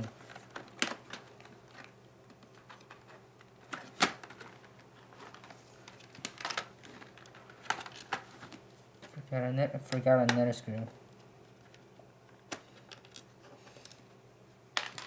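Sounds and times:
plastic laptop casing clicks: 0:00.5 - 0:03.0, 0:03.7 - 0:04.6.

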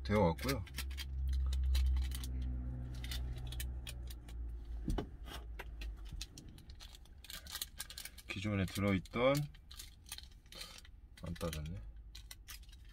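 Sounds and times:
plastic packaging crinkling: 0:05.9 - 0:12.9.

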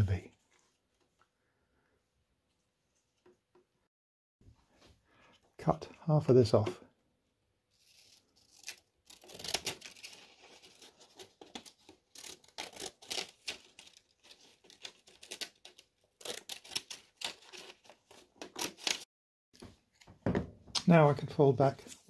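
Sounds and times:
scissors snipping paper: 0:08.4 - 0:19.0.

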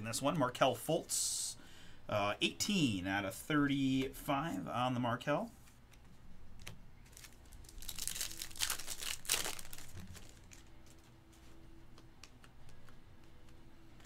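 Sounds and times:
foil wrapper crinkling and tearing: 0:07.0 - 0:11.0.

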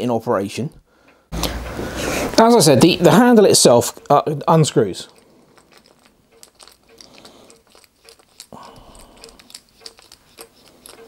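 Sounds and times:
clicks and light scraping: 0:03.6 - 0:11.0
handling rustle: 0:04.8 - 0:11.0.

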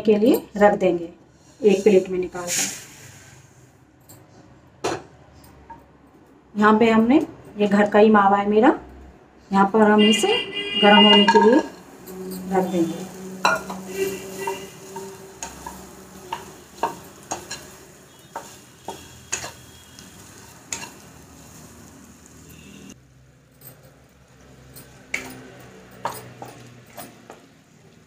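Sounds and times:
soft sizzle: 0:01.4 - 0:03.8, 0:11.3 - 0:23.3
spatula scraping and tapping a pan: 0:11.0 - 0:11.8, 0:13.0 - 0:21.5.

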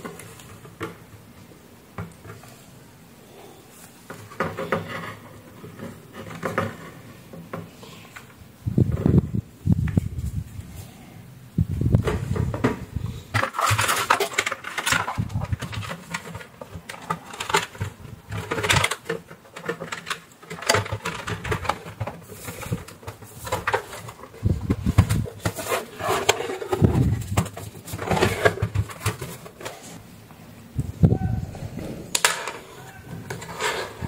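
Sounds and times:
plastic parts knocking and clicking: 0:04.1 - 0:09.2, 0:11.9 - 0:29.8, 0:32.1 - 0:34.0.

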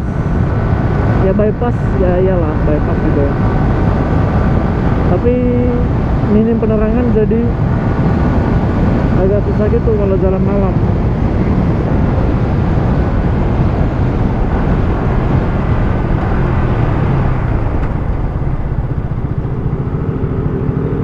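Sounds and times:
wind rushing over microphone: 0:00.0 - 0:21.0
motorcycle engine running: 0:10.4 - 0:21.0.

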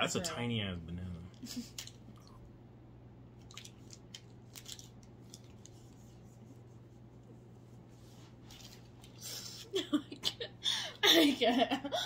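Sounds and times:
plastic wrapper crinkling: 0:03.4 - 0:05.9.

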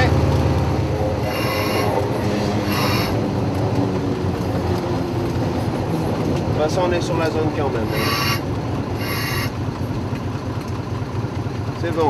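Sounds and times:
rail running noise: 0:00.0 - 0:10.7
railcar wheels squealing: 0:01.2 - 0:03.2, 0:07.9 - 0:09.5.

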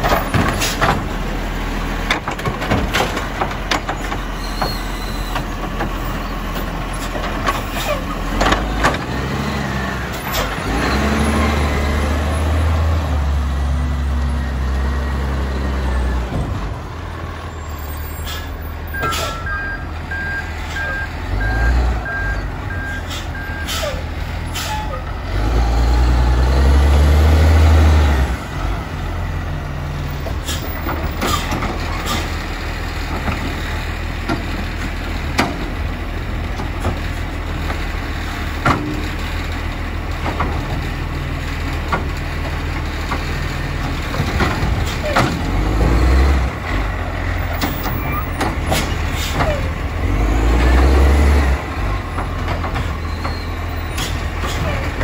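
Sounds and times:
diesel engine revving and idling: 0:00.0 - 0:55.0
truck clunks: 0:00.0 - 0:55.0
air brake hisses: 0:18.1 - 0:19.5, 0:23.0 - 0:24.9
reversing alarm beeps: 0:18.9 - 0:23.8.

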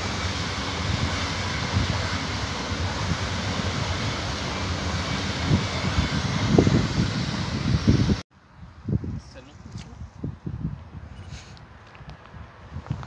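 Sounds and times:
train wheels rolling on rail: 0:00.0 - 0:08.2
wind buffeting microphone: 0:00.0 - 0:13.0.

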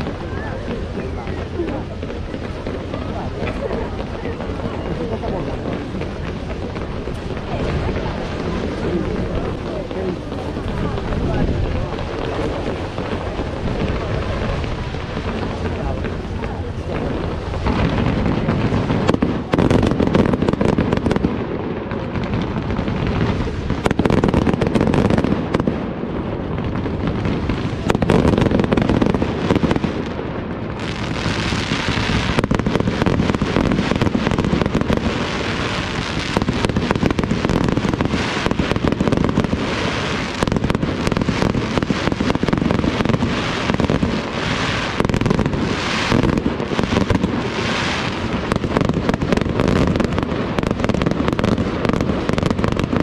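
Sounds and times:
fireworks crackling and hissing: 0:00.0 - 0:53.0
fireworks launching and bursting: 0:00.0 - 0:53.0.

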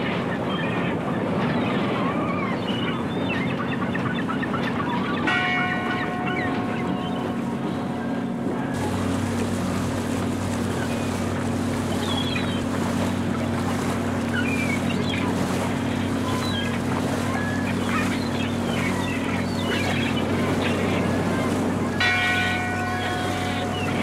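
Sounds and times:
water wash: 0:00.0 - 0:24.0.

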